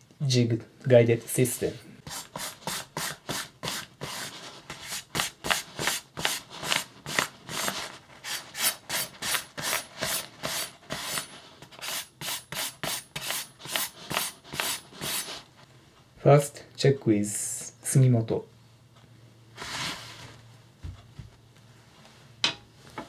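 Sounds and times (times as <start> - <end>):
knife rubbing on newspaper: 2.1 - 15.4.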